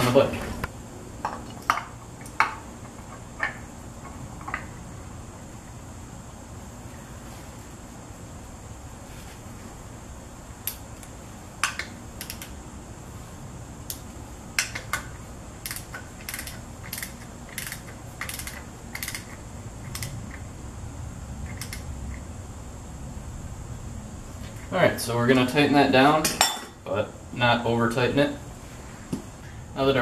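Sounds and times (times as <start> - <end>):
ratchet clicking: 10.6 - 12.6, 14.6 - 20.4, 21.5 - 21.9.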